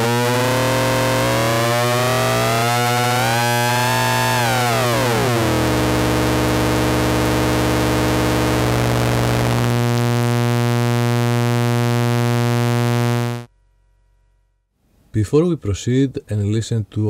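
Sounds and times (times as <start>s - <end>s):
low synthesizer drone: 0.0s - 13.5s.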